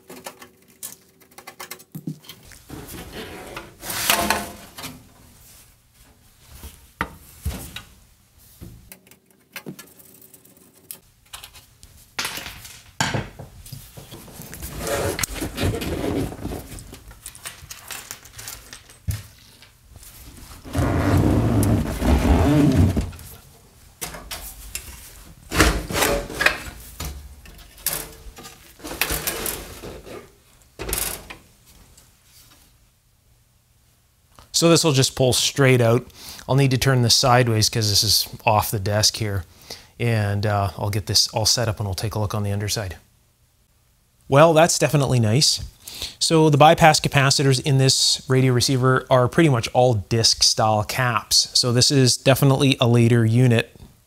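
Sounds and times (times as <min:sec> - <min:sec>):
chassis scraping out of case: 0:14.5 - 0:16.9, 0:20.6 - 0:23.3.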